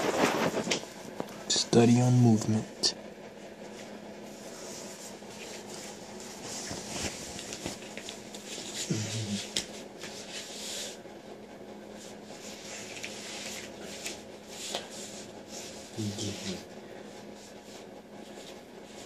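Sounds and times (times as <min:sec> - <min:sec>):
rustling and shuffling on floor: 0:00.0 - 0:01.6, 0:03.2 - 0:19.0
man humming: 0:08.8 - 0:09.6.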